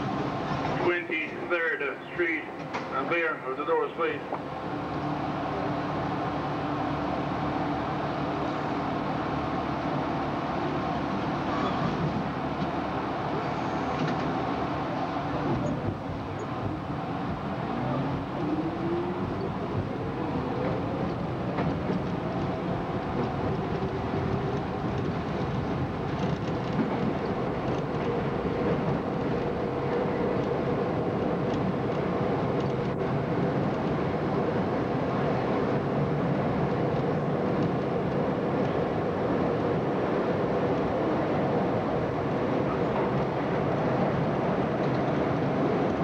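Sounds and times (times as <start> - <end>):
train wheels rumbling on rail: 0.0 - 46.0.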